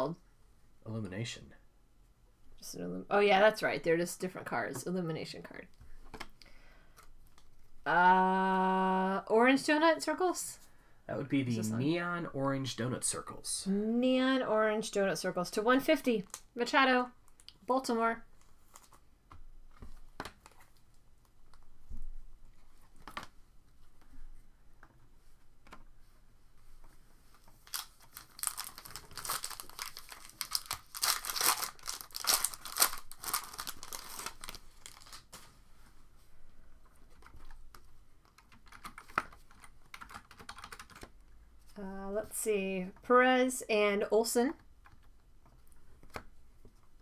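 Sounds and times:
wrapper tearing and crinkling: 27.6s - 35.4s.

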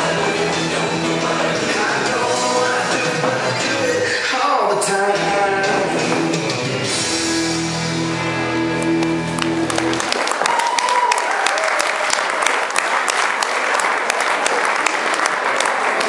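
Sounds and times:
country song: 0.0s - 10.0s
audience applauding: 8.8s - 16.0s.

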